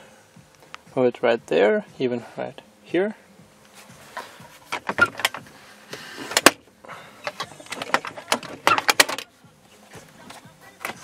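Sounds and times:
plastic table clicks and knocks: 7.3s - 9.2s.

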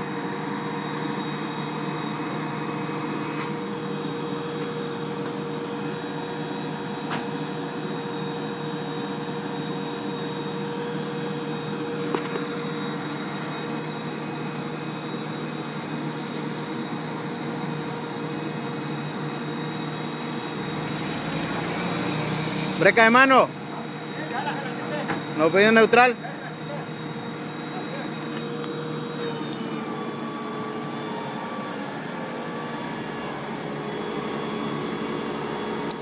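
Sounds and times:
truck engine and hydraulics whining: 0.0s - 36.0s.

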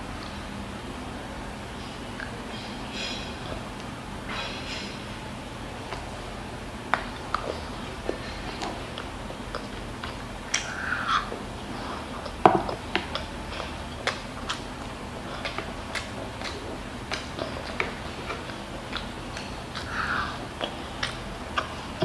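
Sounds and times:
person chewing: 5.8s - 22.0s.

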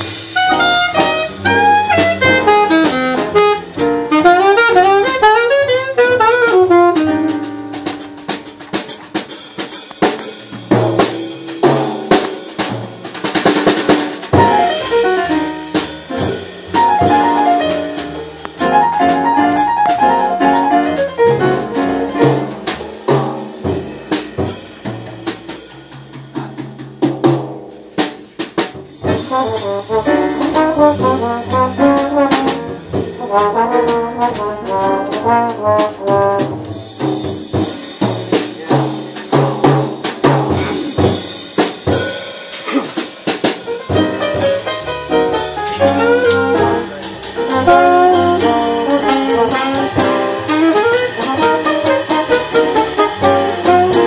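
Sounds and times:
trombone: 0.0s - 8.9s, 13.3s - 24.5s, 29.0s - 41.3s, 43.8s - 54.0s
upright bass: 0.0s - 8.9s, 14.3s - 24.9s, 28.8s - 41.1s, 43.9s - 54.0s
drum kit: 0.0s - 54.0s
piano: 0.0s - 54.0s
saxophone: 0.4s - 7.2s, 47.5s - 54.0s.

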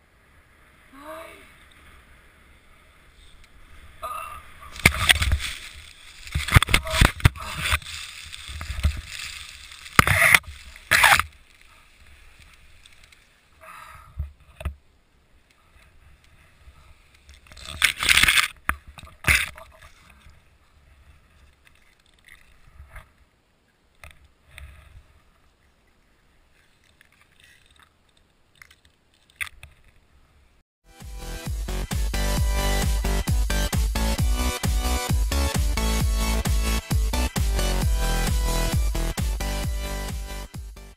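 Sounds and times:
branches rustling and scraping: 0.6s - 13.6s, 14.3s - 30.5s
branches snapping: 4.6s - 13.4s, 17.2s - 19.9s.

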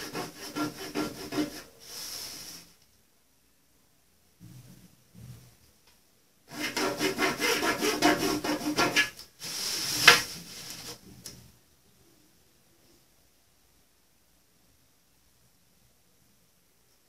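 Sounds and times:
fabric rasping on table: 0.0s - 1.7s, 6.5s - 9.1s.

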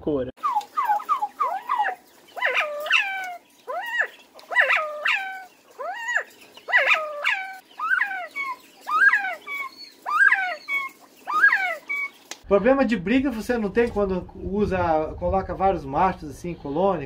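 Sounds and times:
quail whistling calls: 0.4s - 12.3s.

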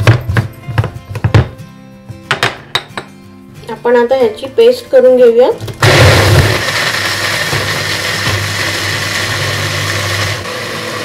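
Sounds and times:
blender motor running: 5.8s - 11.0s.

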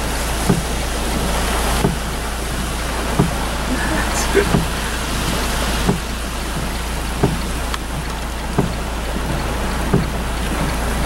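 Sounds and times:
rain falling on a car: 0.0s - 11.0s
short low thump: 0.4s - 0.8s, 1.8s - 2.1s, 3.2s - 3.5s, 4.5s - 4.9s, 5.8s - 8.9s, 9.9s - 10.2s.

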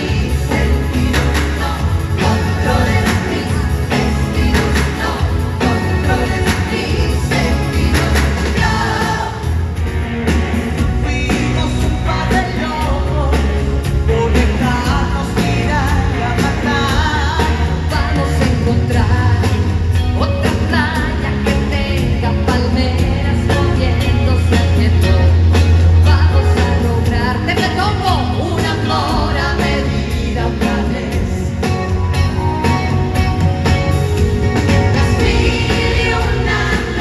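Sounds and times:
women singing into microphones: 0.0s - 9.8s, 14.6s - 31.5s, 34.9s - 37.0s
live pop band: 0.0s - 37.0s.

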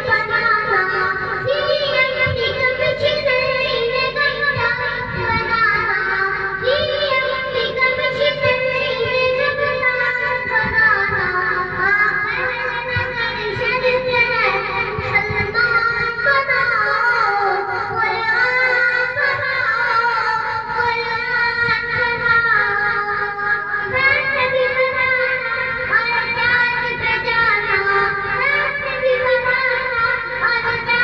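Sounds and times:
boy singing through amplifier: 0.0s - 31.0s.

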